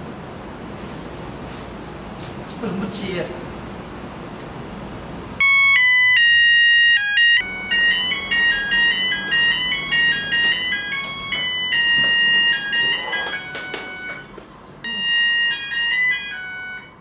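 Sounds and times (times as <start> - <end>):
synthesized melody: 5.4 - 17.0.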